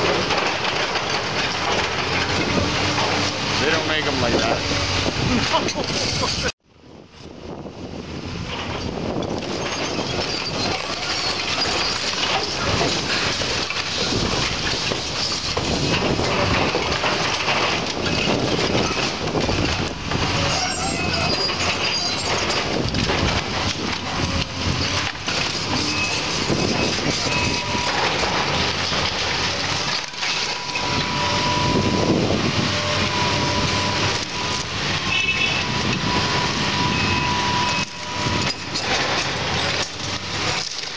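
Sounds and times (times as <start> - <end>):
building crunching and cracking: 0.0 - 6.5, 8.5 - 40.9
debris falling: 0.0 - 6.5, 9.1 - 40.9
thin squealing tone: 9.5 - 13.2, 20.4 - 22.7, 24.2 - 28.6, 29.5 - 39.8.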